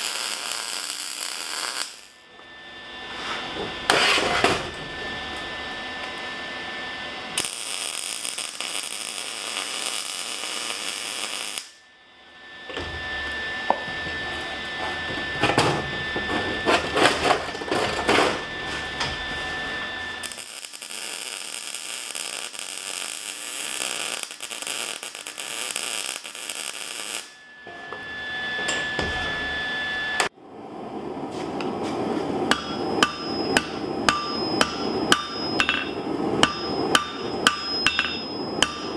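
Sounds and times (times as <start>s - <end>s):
shop machine hiss and whine: 0.0s - 38.9s
hammer blows on anvil: 32.5s - 38.9s.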